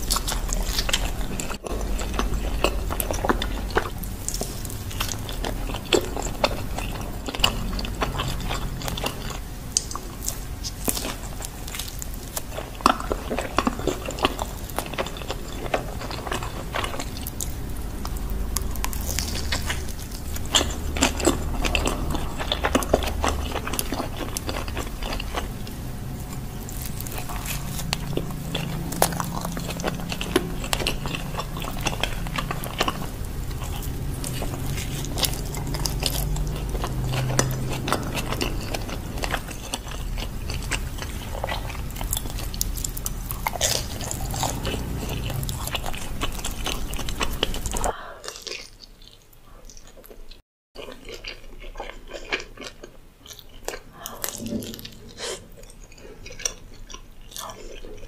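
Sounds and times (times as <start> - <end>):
biting and chewing pizza: 0.0 - 58.0.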